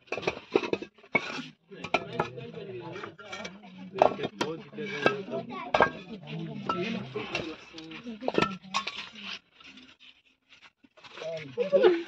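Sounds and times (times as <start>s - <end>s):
bricks clinking and knocking: 0.0s - 11.1s
murmured voices: 1.3s - 9.7s.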